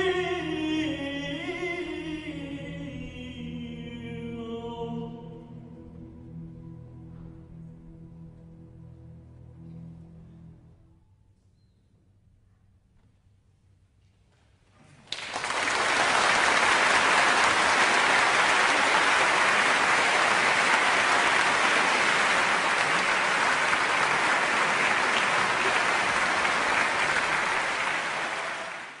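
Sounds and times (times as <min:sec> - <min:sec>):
audience applauding: 0:15.0 - 0:29.0.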